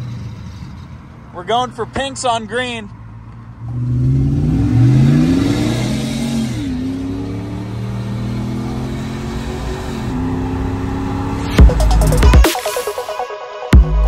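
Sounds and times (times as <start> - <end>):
engine accelerating with gear shifts: 0.0 - 2.2, 2.8 - 12.2.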